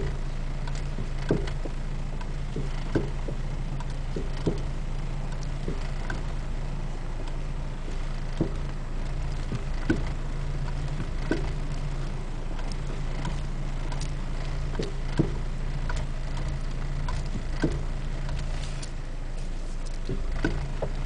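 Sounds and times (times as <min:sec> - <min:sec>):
engine hum: 0:00.0 - 0:21.0
suspension clunking: 0:00.0 - 0:21.0.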